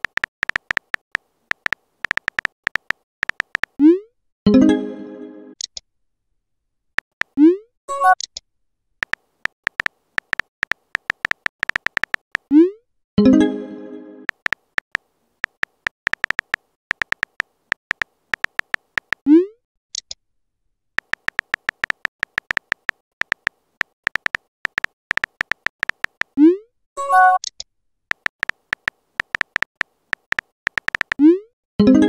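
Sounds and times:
phone keyboard clicks: 0:00.0 - 0:03.8, 0:09.0 - 0:12.5, 0:14.3 - 0:19.2, 0:21.0 - 0:26.4, 0:27.4 - 0:31.2.

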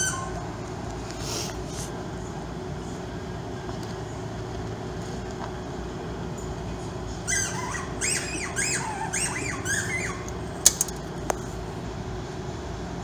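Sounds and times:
animal chirping calls: 0:00.0 - 0:00.6, 0:07.2 - 0:10.4
steady background hum: 0:00.0 - 0:13.0.

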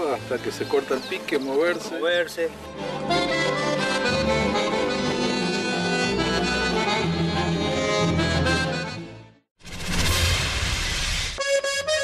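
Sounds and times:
accordion playing: 0:02.2 - 0:09.4.

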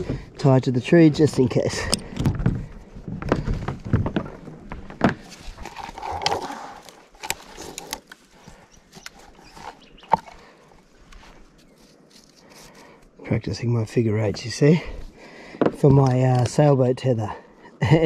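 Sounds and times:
rope rustling and knocking: 0:01.8 - 0:10.4.

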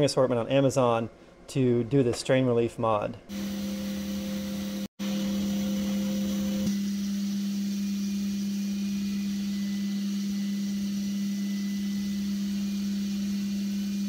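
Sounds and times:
milling machine spindle hum: 0:03.3 - 0:14.0.

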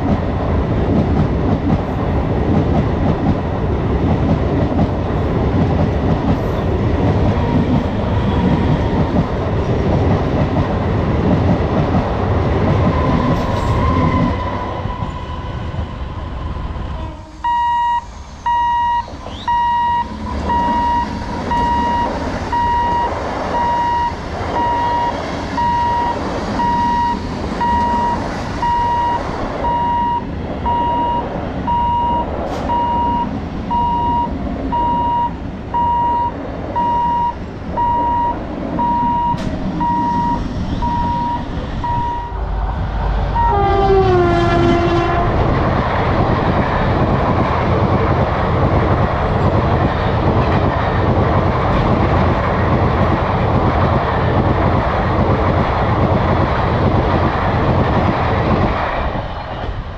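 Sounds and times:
train rumbling past: 0:00.0 - 0:59.9
locomotive horn: 0:16.9 - 0:18.9, 0:43.4 - 0:45.4
level crossing warning beeps: 0:17.4 - 0:42.4.

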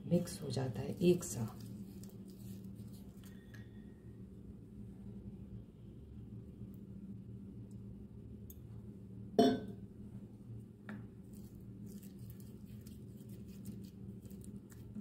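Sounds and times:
low steady hum: 0:00.0 - 0:15.0
steel bowl clinking: 0:09.4 - 0:09.7
tap on steel bowl: 0:09.4 - 0:09.8.

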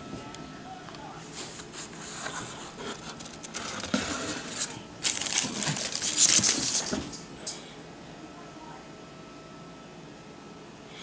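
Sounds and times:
paper crinkling and rustling: 0:01.3 - 0:07.3
cardboard box scraping: 0:01.6 - 0:06.8.

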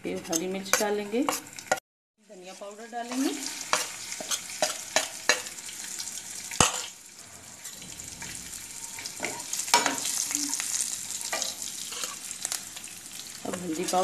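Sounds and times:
spatula knocking and scraping pan: 0:00.1 - 0:01.8, 0:03.1 - 0:05.6, 0:06.6 - 0:07.0, 0:09.1 - 0:10.2
spices sizzling in hot oil: 0:00.1 - 0:14.0.

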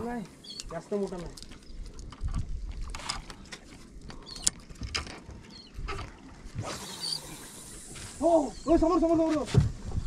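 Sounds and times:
fishing tackle clicking and knocking: 0:00.6 - 0:05.4.

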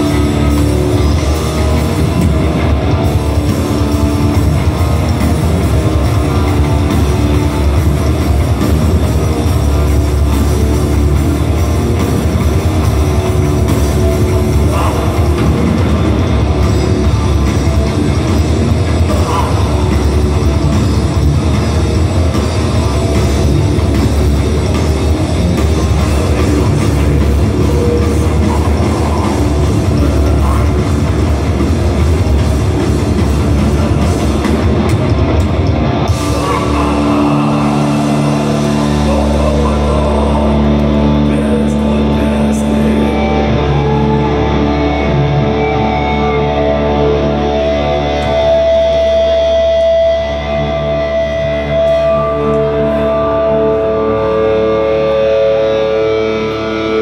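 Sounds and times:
drum kit: 0:00.0 - 0:43.3
distorted guitars: 0:00.0 - 0:57.0.

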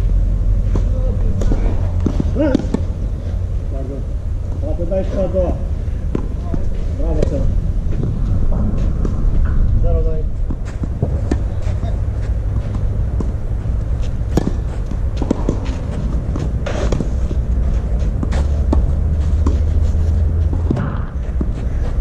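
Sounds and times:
steady low rumble: 0:00.0 - 0:22.0
racket hitting tennis ball: 0:00.7 - 0:03.0, 0:10.5 - 0:21.9.

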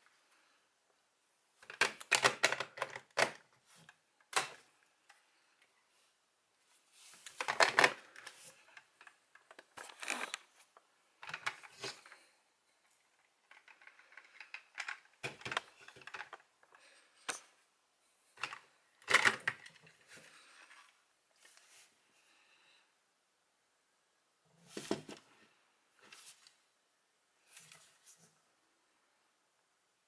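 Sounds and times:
plastic toy parts clicking: 0:01.6 - 0:03.4, 0:13.4 - 0:16.4, 0:18.4 - 0:19.8.

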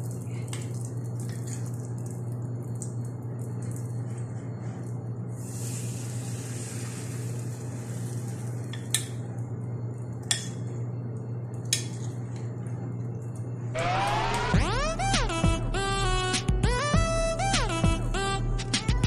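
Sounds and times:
steady low hum: 0:00.0 - 0:19.0
batter sizzling in hot oil: 0:05.4 - 0:08.7.

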